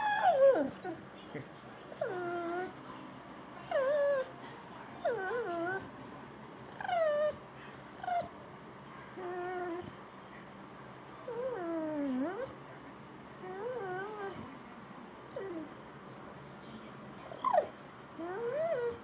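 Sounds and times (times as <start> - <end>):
dog whining and yipping: 0.0 - 1.0, 3.6 - 4.3, 6.7 - 7.4, 17.3 - 19.0.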